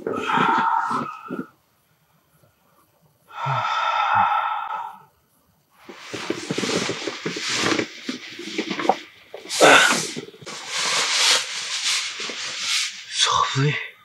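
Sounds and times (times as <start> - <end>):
rustling and rubbing: 5.8 - 13.2.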